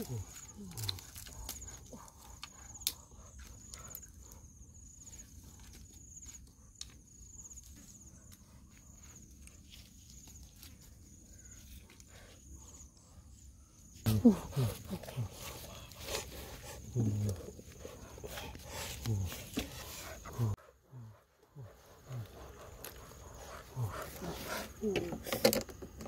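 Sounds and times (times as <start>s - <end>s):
dry sticks clicking and rustling: 0.3s - 4.0s.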